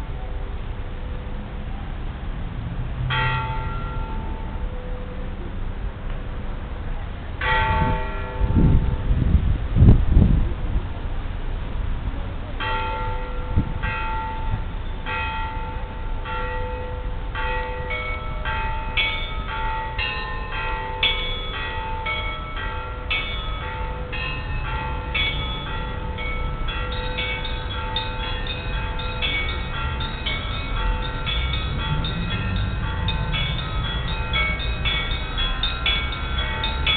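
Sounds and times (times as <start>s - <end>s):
large church bell striking: 3.1s - 5.7s, 7.4s - 9.1s, 12.6s - 36.9s
small high bells ringing: 12.6s - 36.9s.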